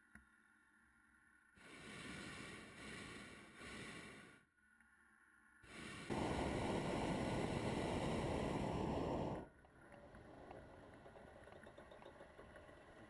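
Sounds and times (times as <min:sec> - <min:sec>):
propane burner blast: 0:05.7 - 0:09.5.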